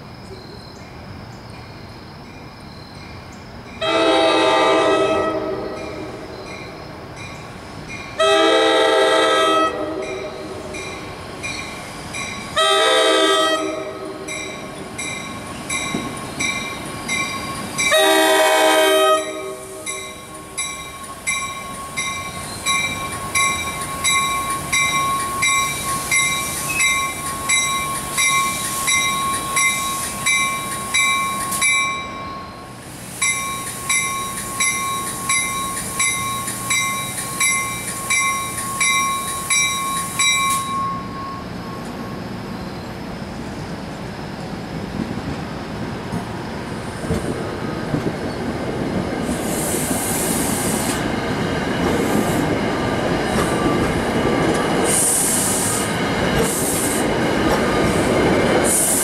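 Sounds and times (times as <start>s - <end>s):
train rumbling and hissing: 0.0s - 59.0s
high-pitched train squeals: 0.2s - 43.6s, 49.2s - 59.0s
crossing warning bell ringing: 2.4s - 42.3s.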